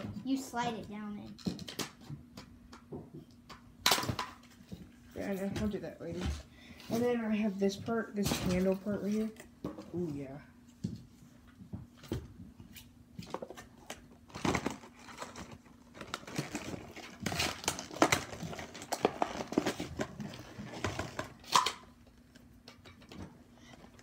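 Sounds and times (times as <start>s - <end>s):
plastic packaging crinkling: 14.3s - 22.4s.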